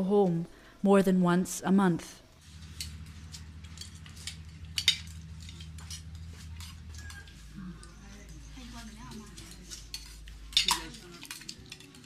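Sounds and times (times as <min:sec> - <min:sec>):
low steady hum: 0:00.0 - 0:12.0
spoons clinking against plates: 0:02.7 - 0:12.0.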